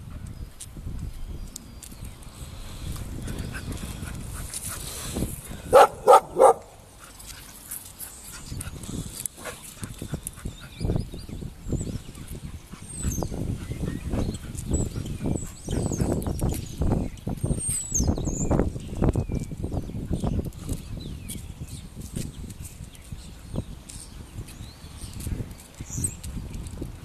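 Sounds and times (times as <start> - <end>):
dogs barking: 5.7 - 6.8.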